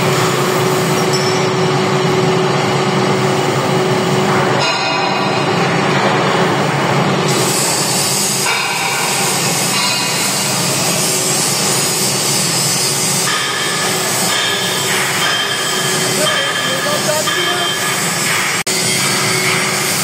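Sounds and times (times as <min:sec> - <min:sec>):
metal lathe machining: 0:00.0 - 0:20.0
high hiss of cutting tool: 0:07.3 - 0:20.0.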